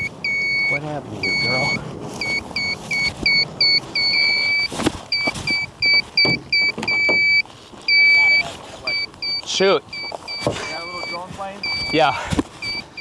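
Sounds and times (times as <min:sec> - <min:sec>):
high-pitched electronic beeps: 0:00.0 - 0:13.0
handling thumps: 0:04.4 - 0:07.4.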